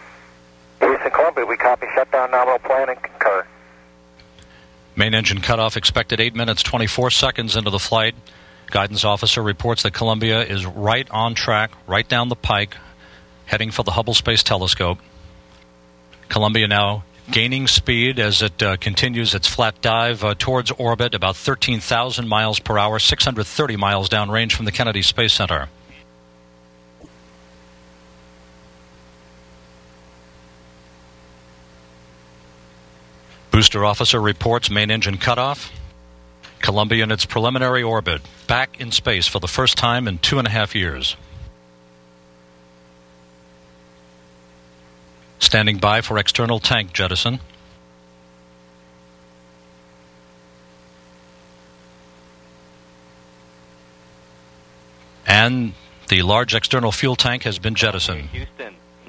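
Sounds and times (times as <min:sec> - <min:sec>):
steady electrical hum: 0:00.0 - 0:59.0.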